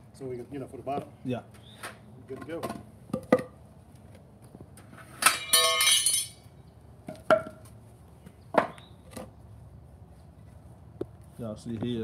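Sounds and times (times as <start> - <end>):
ringing clinking clatter: 5.3 - 6.4
wood knocking on concrete: 7.0 - 7.7, 8.5 - 9.3.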